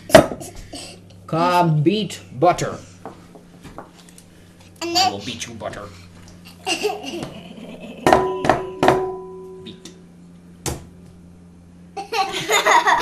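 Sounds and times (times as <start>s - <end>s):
glass bowl knocked and ringing: 8.1s - 9.7s.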